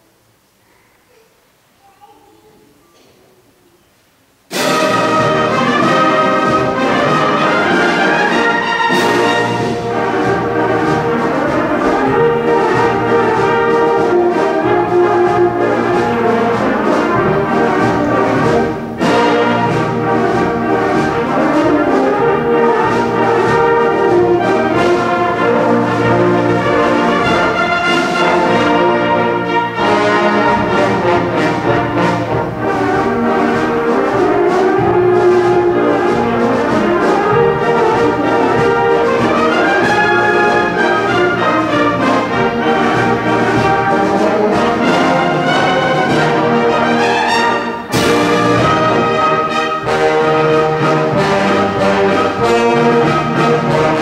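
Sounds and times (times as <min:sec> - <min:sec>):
concert band playing a march: 0:04.5 - 0:54.0.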